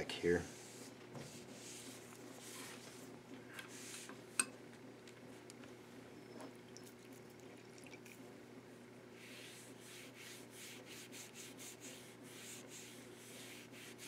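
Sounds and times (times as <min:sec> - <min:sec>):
hand rubbing leather: 0:09.2 - 0:14.0.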